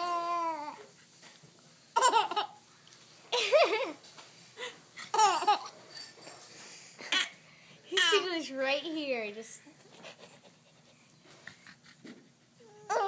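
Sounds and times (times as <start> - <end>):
baby laughing: 2.0 - 2.6, 5.1 - 5.8.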